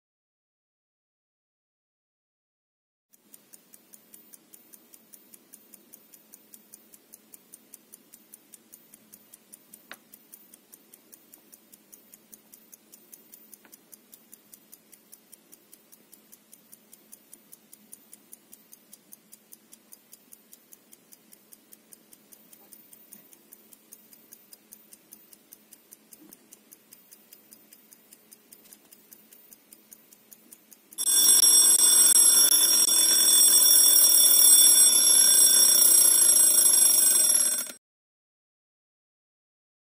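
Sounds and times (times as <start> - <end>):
clock ticking fast: 3.1 - 37.8
alarm clock ringing: 31.0 - 37.8.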